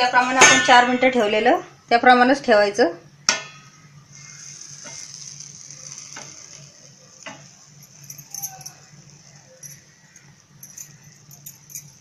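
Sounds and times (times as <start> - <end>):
metal lid clanking: 0.0 - 1.4
food sizzling on griddle: 4.1 - 7.8.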